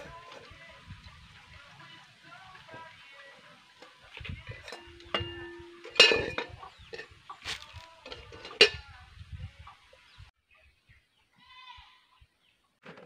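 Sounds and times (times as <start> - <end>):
metal lid clanking on pot: 4.5 - 7.1, 8.0 - 8.8.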